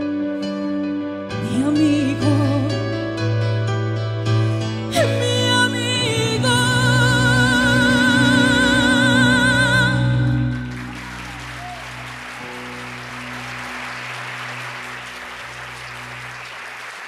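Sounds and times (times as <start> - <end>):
keyboard chords: 0.0 - 17.0
person singing with vibrato: 1.4 - 3.2, 4.8 - 10.7
audience applauding: 9.9 - 17.0.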